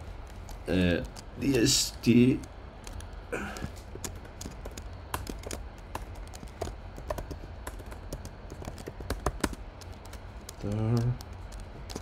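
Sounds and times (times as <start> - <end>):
steady low hum: 0.0 - 12.0
computer keyboard key clicks: 3.9 - 12.0.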